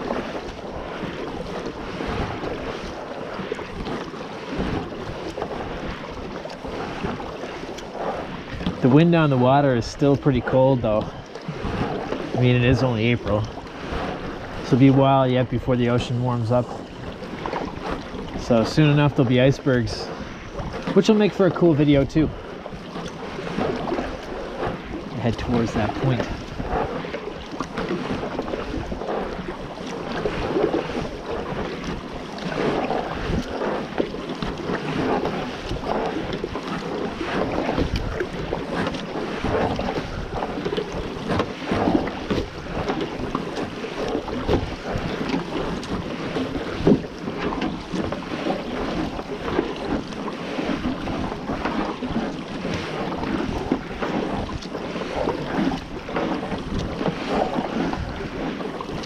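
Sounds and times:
wind on microphone: 0:00.0 - 0:50.1, 0:50.7 - 0:59.0
kayak paddle strokes in water: 0:00.0 - 0:59.0
water dripping from paddle: 0:02.4 - 0:08.9.

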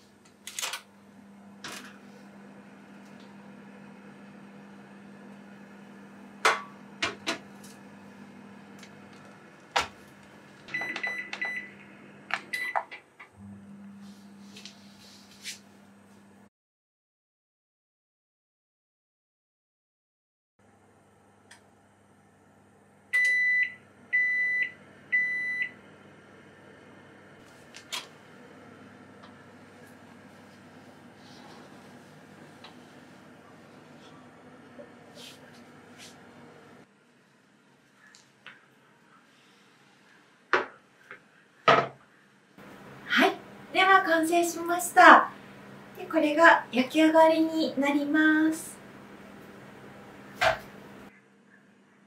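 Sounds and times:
oven beeping: 0:10.6 - 0:12.9, 0:23.2 - 0:25.9.

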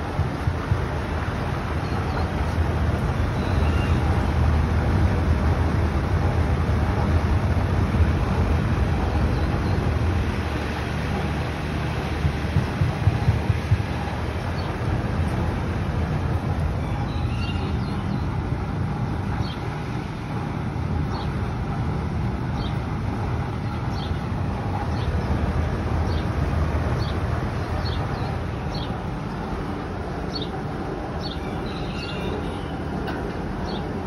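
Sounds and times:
fan rumbling: 0:00.0 - 0:34.0
bird chirps: 0:03.4 - 0:04.0, 0:16.8 - 0:18.3, 0:31.2 - 0:32.8.

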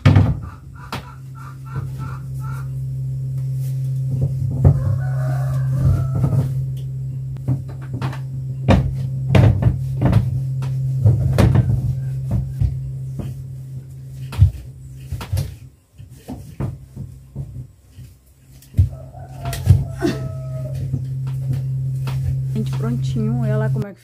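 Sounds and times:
wardrobe doors knocking and clicking: 0:00.0 - 0:01.1, 0:07.4 - 0:13.4
low hum: 0:00.0 - 0:24.0.

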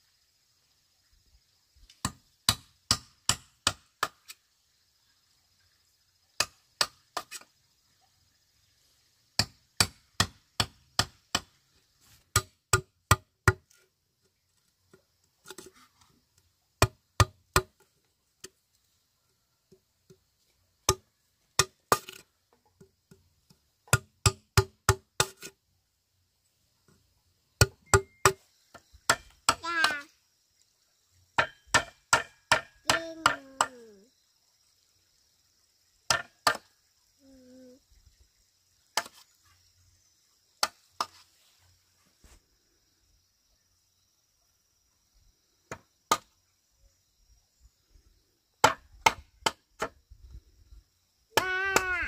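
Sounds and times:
metal tool knocking inside bamboo: 0:27.6 - 0:29.7, 0:31.4 - 0:33.7, 0:36.1 - 0:36.6.

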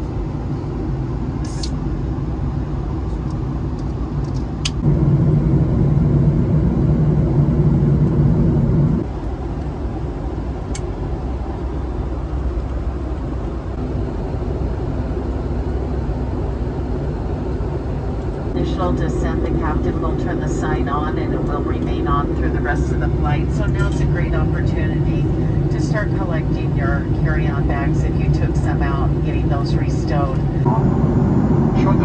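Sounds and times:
airplane cabin engine roar: 0:00.0 - 0:32.0.

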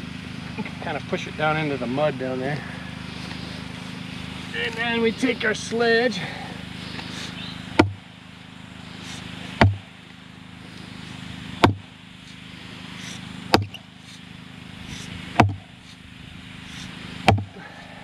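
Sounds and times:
sledgehammer pounding wooden post: 0:07.7 - 0:08.0, 0:09.1 - 0:09.9, 0:11.6 - 0:11.9, 0:13.5 - 0:13.8, 0:14.9 - 0:15.7, 0:16.7 - 0:17.6.

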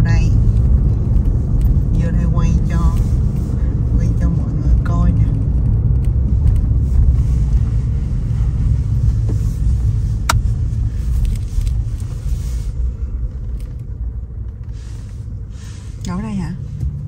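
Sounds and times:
car cabin road and engine rumble: 0:00.0 - 0:17.0.

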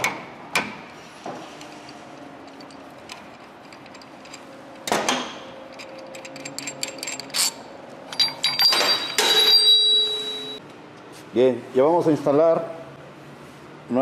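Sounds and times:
metal clicks and clinks: 0:05.7 - 0:10.6
ringing metal clink: 0:06.2 - 0:10.6.

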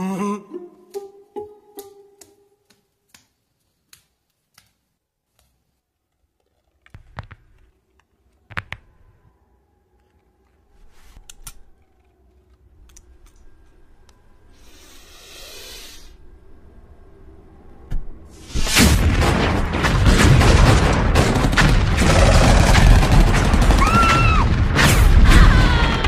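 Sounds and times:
hiss: 0:14.5 - 0:16.3.

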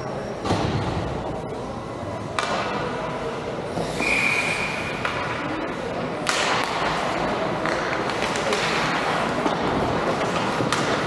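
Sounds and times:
whistle blast: 0:04.0 - 0:05.0.

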